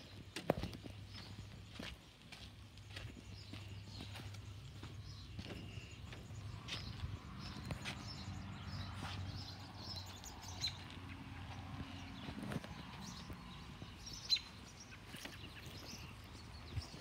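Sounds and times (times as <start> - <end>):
birds chirping faintly: 0.0 - 17.0
footsteps on garden path: 0.0 - 17.0.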